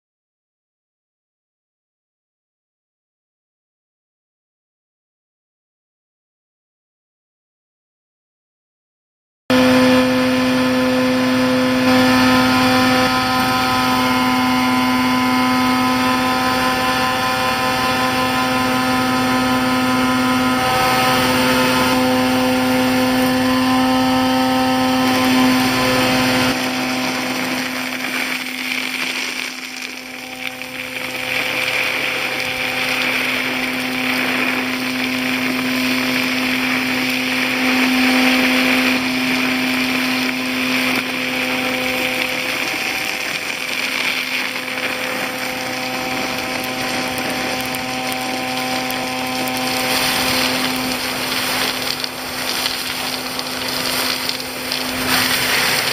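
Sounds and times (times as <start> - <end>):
vacuum truck suction hum: 9.5 - 55.9.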